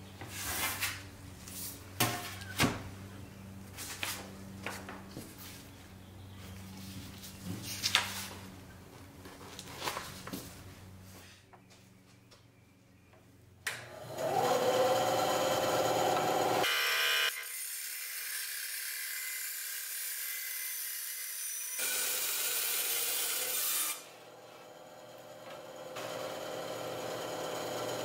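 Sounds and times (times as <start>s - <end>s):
band saw motor whine: 13.8s - 17.5s, 23.4s - 28.0s
saw blade cutting sheet metal: 15.0s - 24.7s.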